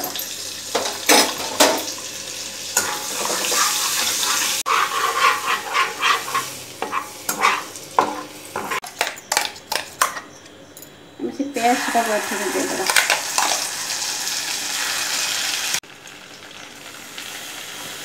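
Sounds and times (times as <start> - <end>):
butter and oil sizzling: 0.0 - 10.1, 11.6 - 18.0
spatula scraping a pan: 2.8 - 10.3.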